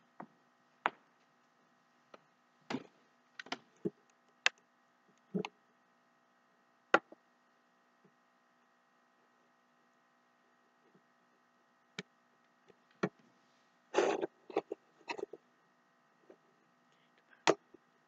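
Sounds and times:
faint electrical hum: 0.0 - 18.0
sharp clicks and knocks: 2.1 - 5.6.

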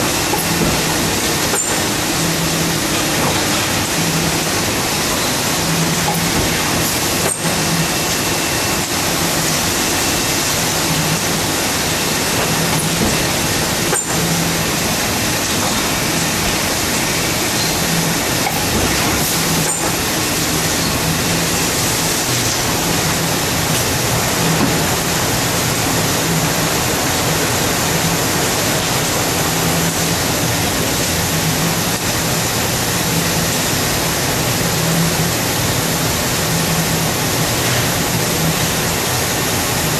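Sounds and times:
low machine hum: 0.0 - 39.9.

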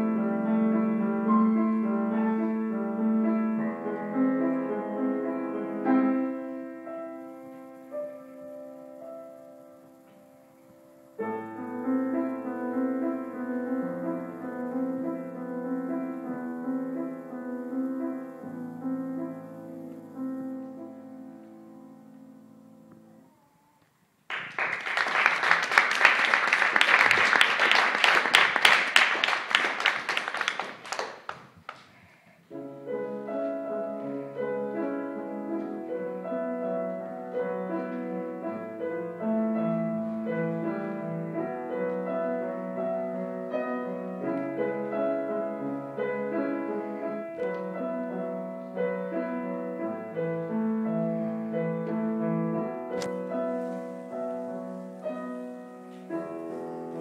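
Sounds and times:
grand piano melody: 0.0 - 31.7, 32.4 - 57.0
audience applauding: 24.3 - 32.0.

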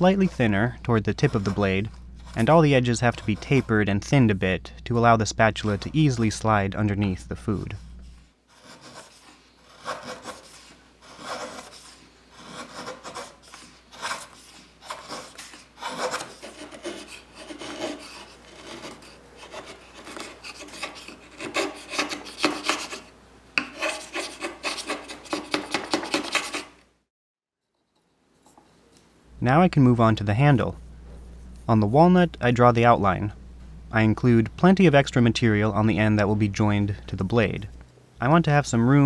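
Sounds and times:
chisel scraping wood: 0.0 - 3.8, 7.7 - 26.8.

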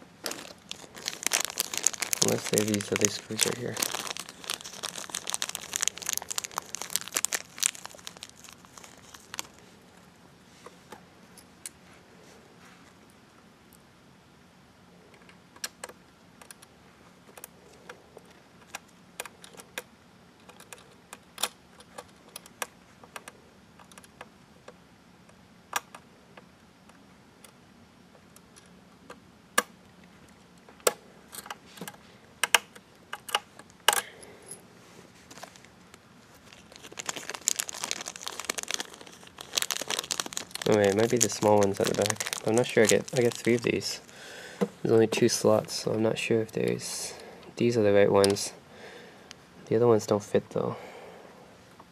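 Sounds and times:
plastic bag crinkling: 0.2 - 10.0, 35.2 - 47.2.

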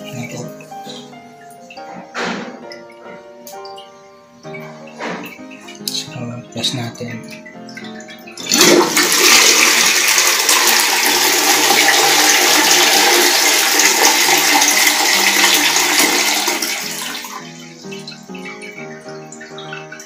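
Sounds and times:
toilet flushing: 4.4 - 20.0.

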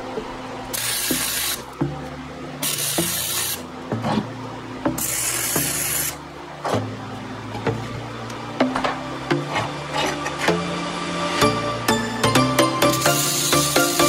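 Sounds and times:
welder arcing crackling hiss: 0.7 - 1.7, 2.6 - 3.6, 5.0 - 6.2, 12.8 - 14.0.

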